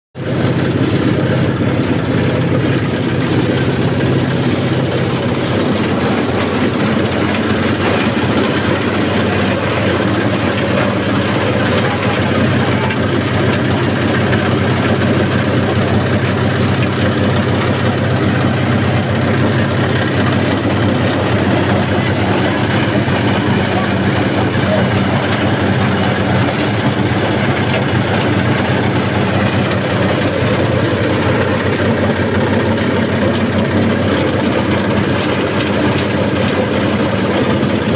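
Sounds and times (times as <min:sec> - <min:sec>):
chopper shredding corn husks: 0:00.2 - 0:37.9
engine hum: 0:00.2 - 0:37.9.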